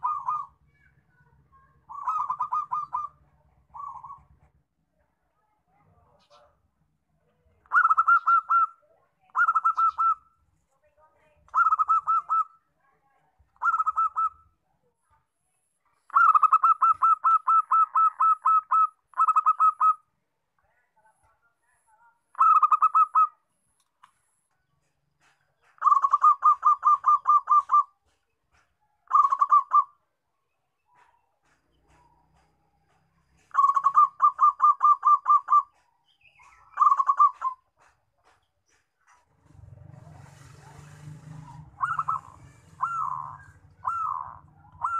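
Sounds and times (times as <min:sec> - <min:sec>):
dove cooing in staccato bursts: 0:00.0 - 0:00.6, 0:01.5 - 0:04.5, 0:07.6 - 0:10.3, 0:11.5 - 0:12.6, 0:13.6 - 0:14.6, 0:16.1 - 0:20.1, 0:22.3 - 0:23.4, 0:24.8 - 0:30.0, 0:31.0 - 0:44.9.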